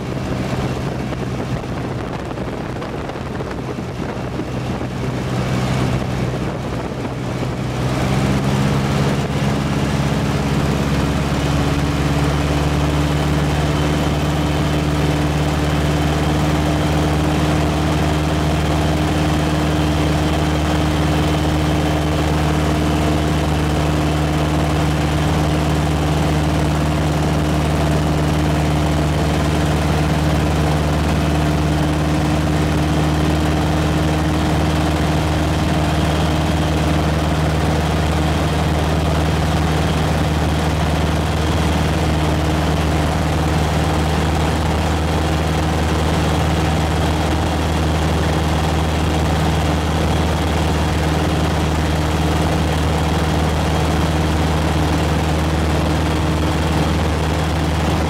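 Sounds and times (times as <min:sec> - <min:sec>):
aircraft engine and propeller drone: 0:00.0 - 0:58.0
wind noise: 0:00.0 - 0:58.0.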